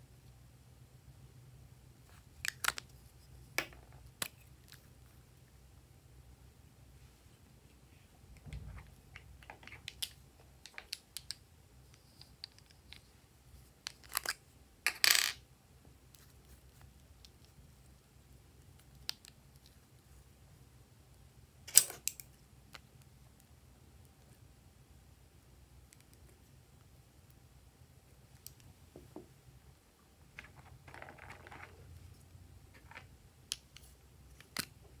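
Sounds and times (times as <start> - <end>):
plastic tubes clicking and tapping: 8.4 - 13.1, 30.4 - 31.9.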